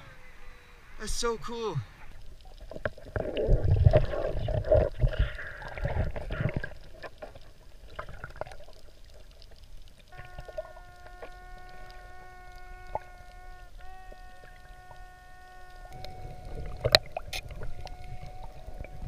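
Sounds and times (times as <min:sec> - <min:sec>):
water rushing and bubbling: 0:00.0 - 0:19.0
underwater noise with clicks: 0:02.0 - 0:19.0.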